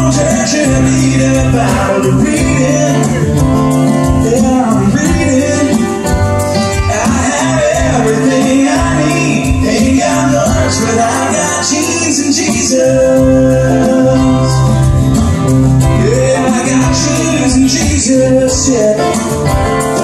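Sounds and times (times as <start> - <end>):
men singing: 0.0 - 15.0, 15.8 - 19.6
acoustic guitars strumming: 0.0 - 20.0.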